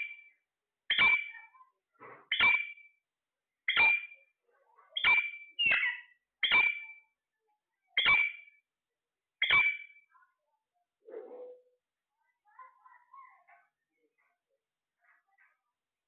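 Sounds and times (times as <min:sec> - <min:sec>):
parakeet calling: 0:00.9 - 0:01.6, 0:02.3 - 0:02.9, 0:03.7 - 0:04.2, 0:04.9 - 0:07.0, 0:08.0 - 0:08.6, 0:09.4 - 0:10.0.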